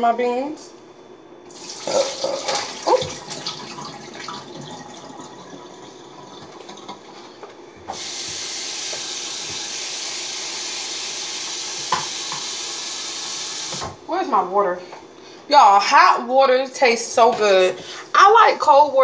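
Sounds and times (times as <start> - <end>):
water sloshing in glass bowl: 1.6 - 4.9
tap running into sink: 7.9 - 14.0.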